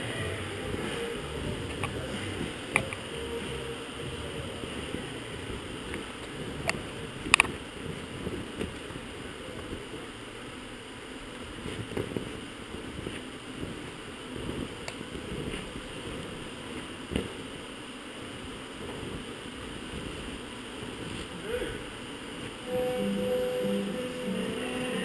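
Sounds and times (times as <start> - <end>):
steady low rumble: 0.0 - 10.3.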